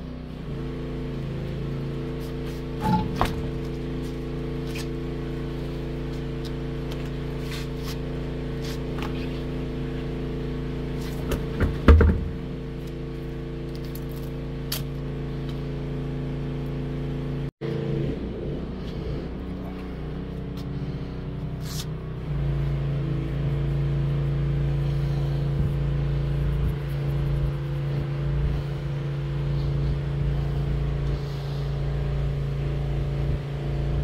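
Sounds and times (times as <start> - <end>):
wheel thumping on concrete: 2.1 - 5.1, 10.9 - 13.0
wheel knocking: 11.2 - 12.5
low drone: 17.6 - 34.0.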